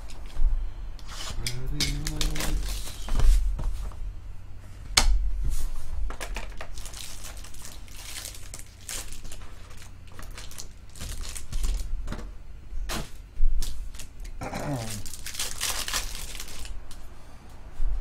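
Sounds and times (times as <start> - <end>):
plastic wrapping crinkling and tearing: 1.9 - 3.1, 6.1 - 11.9, 13.6 - 17.0.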